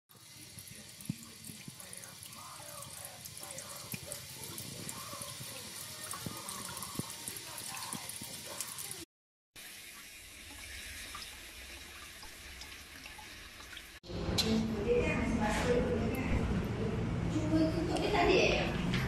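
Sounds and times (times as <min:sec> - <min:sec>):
tap water running into sink: 0:00.1 - 0:09.0, 0:09.6 - 0:14.0
water splashes and drips: 0:00.1 - 0:14.0.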